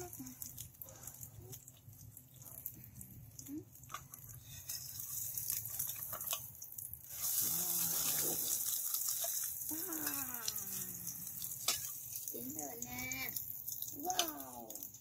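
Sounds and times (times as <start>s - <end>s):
food sizzling in a frying pan: 0.0s - 15.0s
woman cooing: 9.7s - 11.2s.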